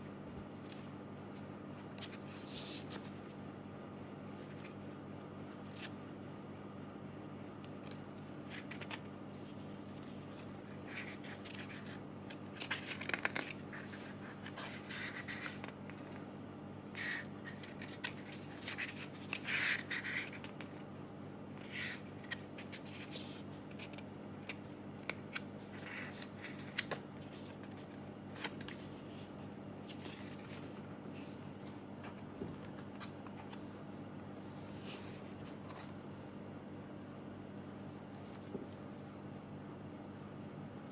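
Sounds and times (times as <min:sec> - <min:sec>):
steady low hum: 0:00.0 - 0:40.9
paper pages rustling: 0:01.8 - 0:03.3, 0:07.8 - 0:16.0, 0:17.0 - 0:20.8, 0:21.6 - 0:33.8, 0:34.4 - 0:36.2.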